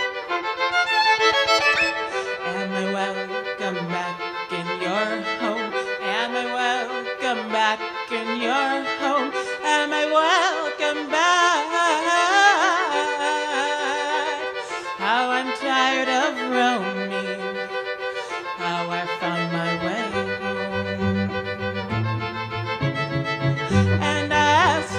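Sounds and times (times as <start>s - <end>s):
violin chords: 0.0s - 24.9s
woman singing with vibrato: 2.0s - 17.9s, 18.5s - 21.2s, 23.7s - 24.9s
low bass line: 20.3s - 24.9s.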